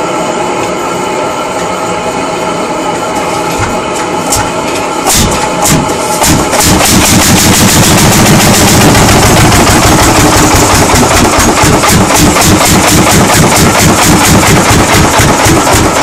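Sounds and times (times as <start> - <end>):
engine popping beat: 4.3 - 16.0.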